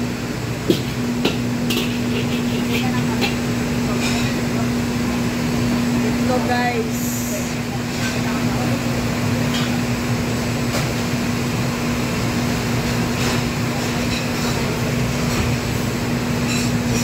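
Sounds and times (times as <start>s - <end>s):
ventilation and burners hum: 0.0s - 17.0s
metal utensils and bowls clinking: 0.7s - 4.5s, 16.4s - 17.0s.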